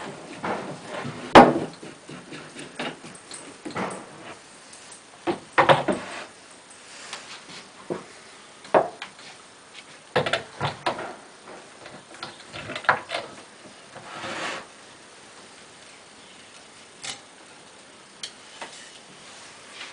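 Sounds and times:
wood rubbing scrape: 0.0 - 4.4, 5.7 - 6.4, 11.9 - 14.8.

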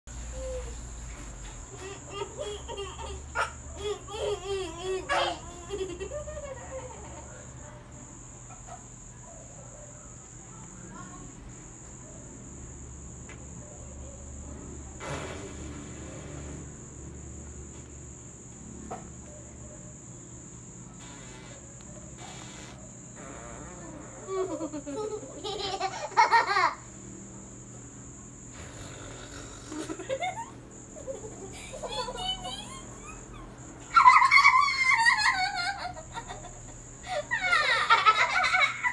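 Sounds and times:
insect trill: 0.1 - 38.9
girl laughing loudly: 1.8 - 7.4, 24.1 - 26.8, 29.8 - 38.9.

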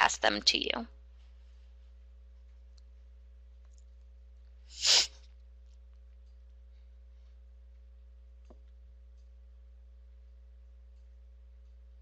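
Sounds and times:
low electrical hum: 0.0 - 12.0
sharp burst of breath: 4.7 - 5.2.

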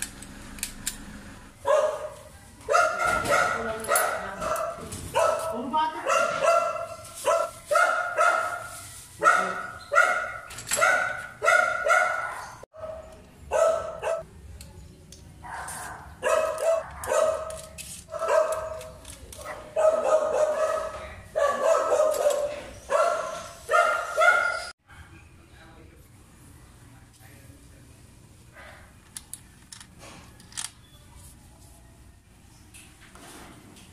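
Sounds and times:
dog barking: 1.6 - 14.2, 15.4 - 25.2.

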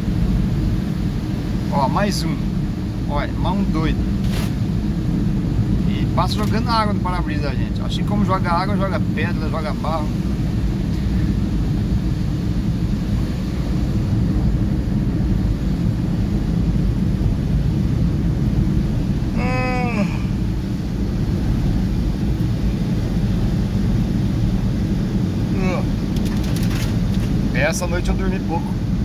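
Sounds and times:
car driving on wet road: 17.2 - 28.9.

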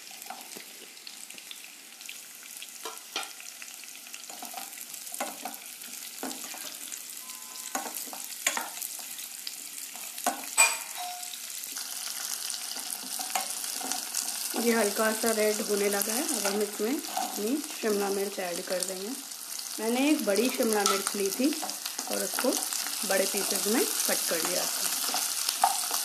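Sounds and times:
onion sizzling in hot oil: 0.0 - 26.0
spatula scraping a pan: 4.3 - 7.0, 12.1 - 14.7, 16.3 - 17.7, 20.4 - 26.0.

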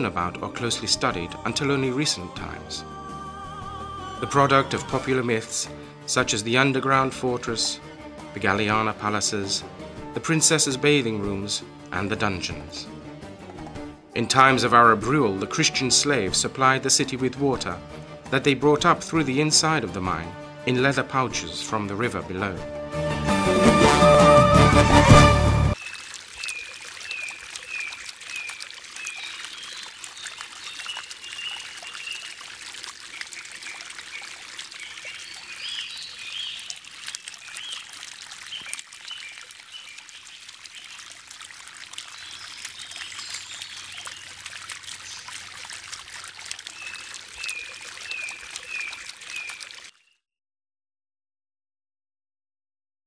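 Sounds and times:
fountain water splashing: 23.6 - 50.0
birds chirping: 25.8 - 41.0, 42.0 - 45.7, 46.6 - 50.2.

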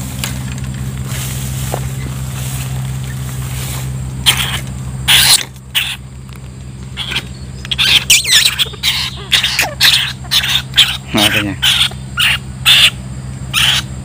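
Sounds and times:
low motor hum: 0.0 - 14.0
rat squealing: 4.2 - 6.1, 6.9 - 14.0.

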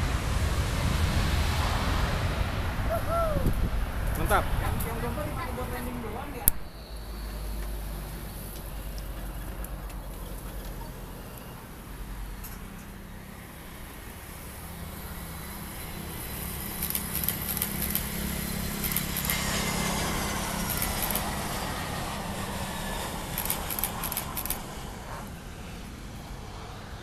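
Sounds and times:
jet engines whining: 13.1 - 27.0.

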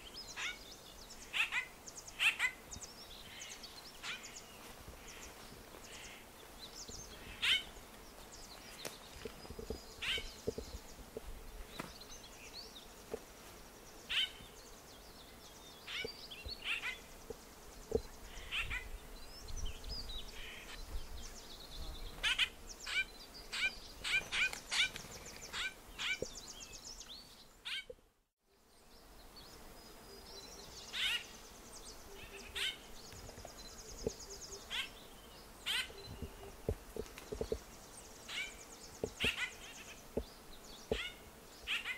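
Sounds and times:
bird calling with sharp notes: 38.3 - 40.0, 40.9 - 41.9
bird trilling: 38.3 - 40.0.

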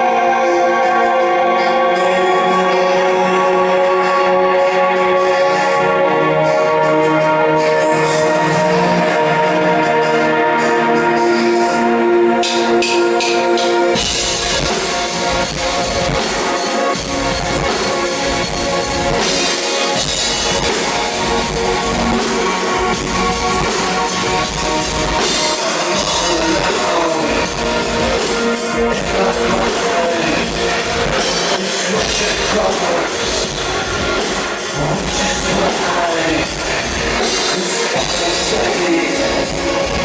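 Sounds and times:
industrial rock band playing: 0.0 - 40.0
steady drum beat: 12.4 - 40.0.

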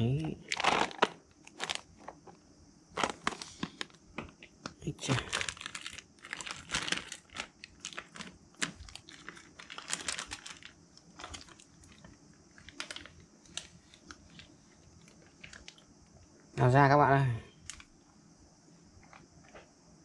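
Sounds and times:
plastic bag crinkling: 0.4 - 4.4, 5.1 - 15.8.

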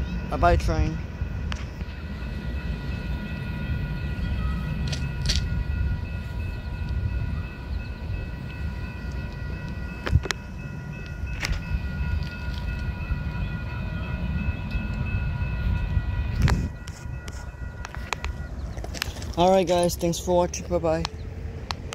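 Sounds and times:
high ringing tone: 0.0 - 20.6
freight train rumbling: 0.0 - 21.9.

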